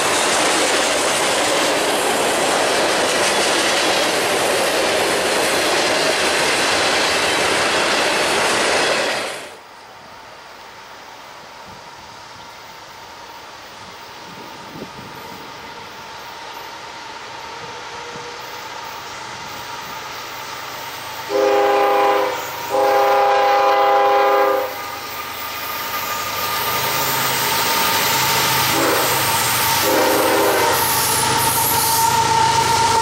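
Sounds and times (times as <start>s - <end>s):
train engines and wheels rumbling: 0.0s - 33.0s
locomotive air horn blasts: 21.3s - 24.9s, 28.7s - 31.0s.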